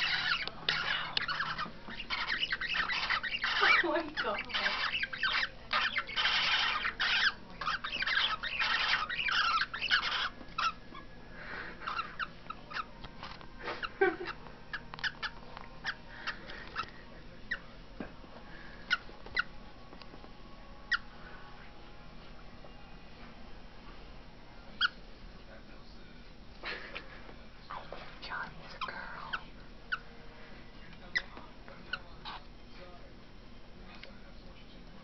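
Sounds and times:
birds chirping and clicking: 0.0s - 11.1s, 11.8s - 17.6s, 18.5s - 20.3s, 27.7s - 30.1s, 30.9s - 32.6s
birds chattering: 0.0s - 17.8s, 18.5s - 19.6s, 20.8s - 21.4s, 24.8s - 25.0s, 26.6s - 30.2s, 30.8s - 32.6s.

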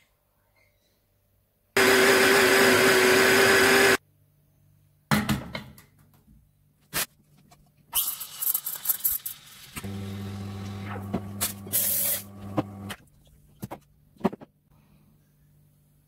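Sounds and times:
espresso machine pump humming: 9.8s - 12.9s.

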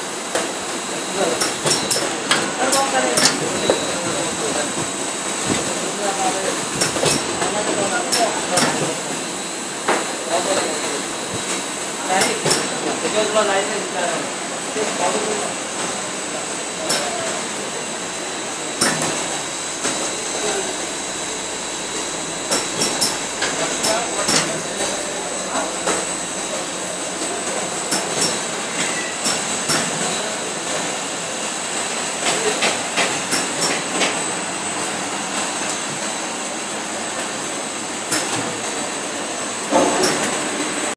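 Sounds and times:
hot-air blower rushing: 0.0s - 12.8s, 17.8s - 28.8s
machine whirring with high whine: 0.0s - 40.9s
sharp machine clacks: 0.3s - 12.8s, 18.8s - 30.3s, 32.2s - 34.2s, 38.1s - 38.4s
sharp click: 22.5s - 26.1s, 27.9s - 28.4s.

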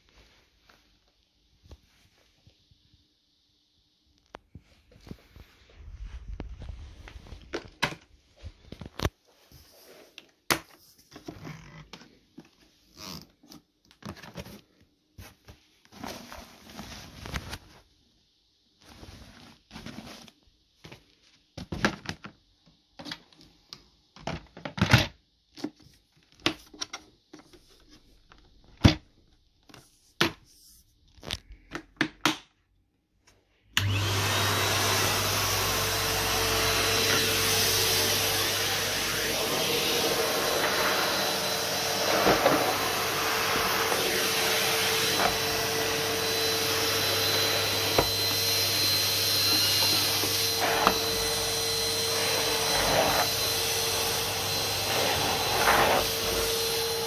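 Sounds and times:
vacuum cleaner motor humming: 33.8s - 57.0s.

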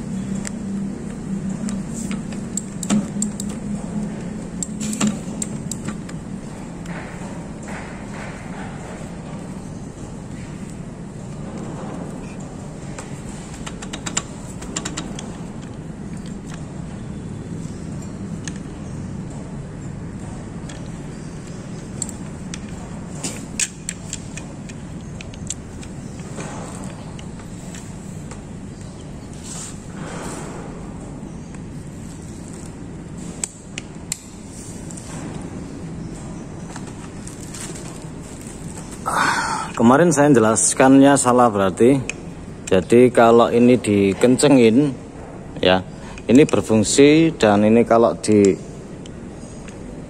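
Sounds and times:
steady low hum: 0.0s - 50.0s
sharp metallic clicks: 0.3s - 6.2s, 13.5s - 16.6s.

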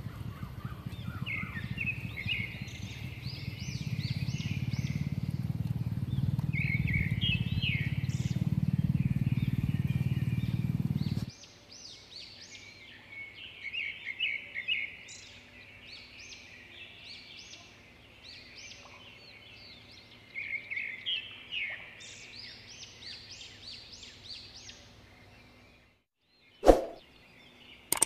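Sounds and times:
birds calling: 0.0s - 26.0s.

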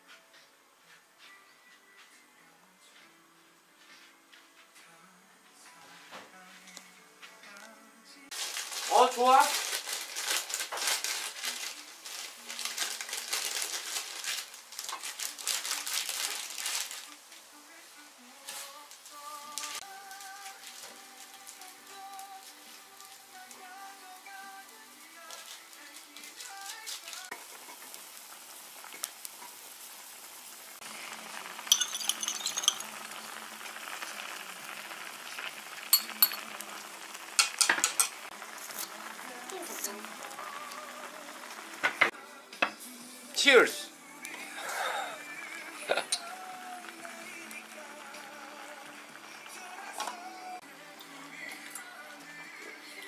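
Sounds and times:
plastic snack bag crinkling: 8.3s - 17.2s, 30.8s - 41.8s
pot boiling with bubbling hiss: 8.3s - 42.2s, 44.2s - 53.0s.

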